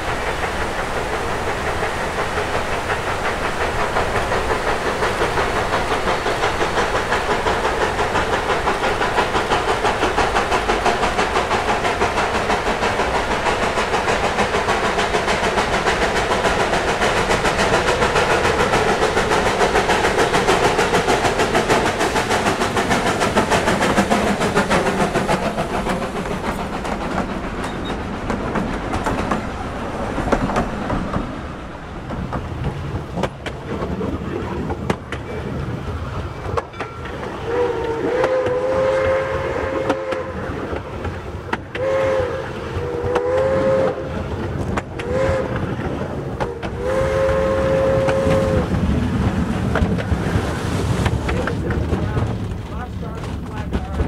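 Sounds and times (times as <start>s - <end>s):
steam locomotive working: 0.0s - 54.0s
train cars clattering: 0.0s - 54.0s
steam whistle blasts: 37.4s - 40.4s, 41.8s - 44.2s, 45.0s - 45.6s, 46.4s - 48.7s.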